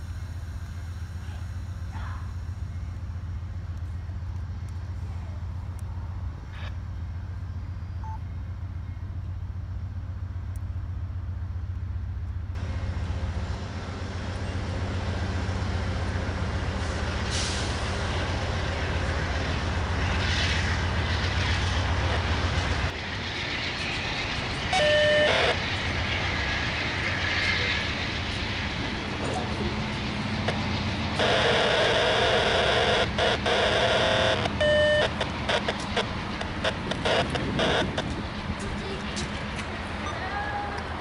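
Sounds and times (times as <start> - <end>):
diesel locomotive engine drone: 0.0 - 41.0
rumble of moving train: 0.0 - 41.0.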